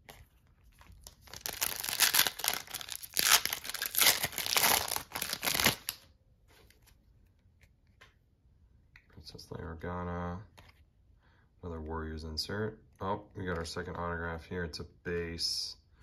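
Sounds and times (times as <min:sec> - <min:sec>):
card pack wrapper crinkling: 0:00.0 - 0:06.0.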